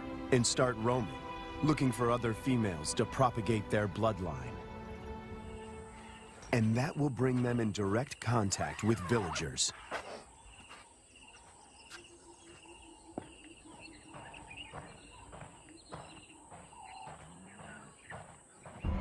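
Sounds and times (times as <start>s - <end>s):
bird whistles and calls: 8.6s - 18.9s
insect chirping: 9.6s - 18.8s.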